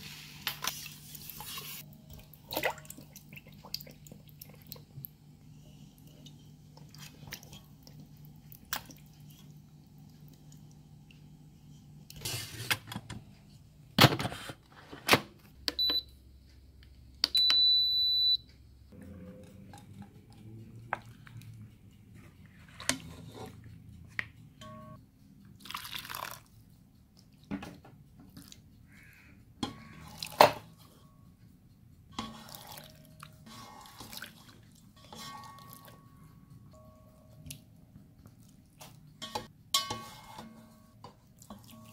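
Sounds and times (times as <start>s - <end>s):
broth drips and splashes: 2.1s - 5.2s.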